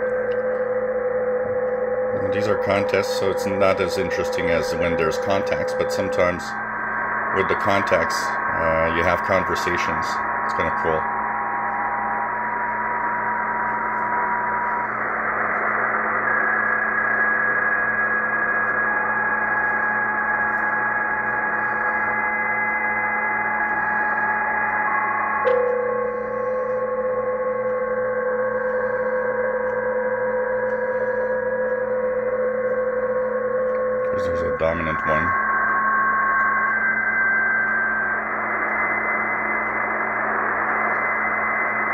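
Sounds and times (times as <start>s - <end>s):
click: 0.0s - 0.7s, 40.6s - 41.2s
strong low tone: 0.0s - 12.6s, 25.4s - 41.9s
digital radio signal tones: 1.4s - 11.1s, 33.8s - 35.5s
radio band hiss: 2.2s - 11.1s, 34.1s - 35.4s.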